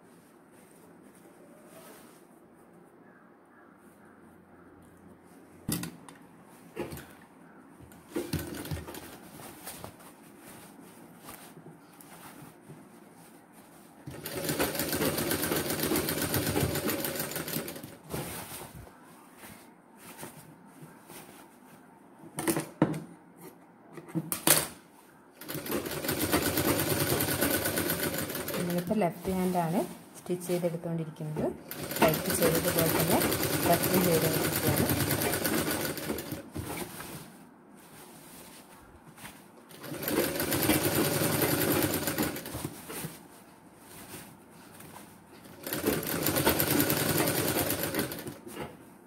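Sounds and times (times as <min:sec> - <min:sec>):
fabric handling: 0:00.0 - 0:02.9, 0:06.3 - 0:22.2, 0:24.9 - 0:49.0
sewing machine stitching: 0:14.1 - 0:18.0, 0:25.4 - 0:28.9, 0:31.7 - 0:36.4, 0:39.7 - 0:42.7, 0:45.5 - 0:48.6.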